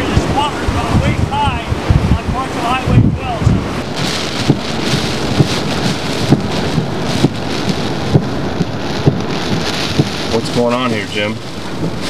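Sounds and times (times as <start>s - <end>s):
heavy rain and wind hiss: 0.0s - 12.0s
short dull thumps: 3.5s - 12.0s.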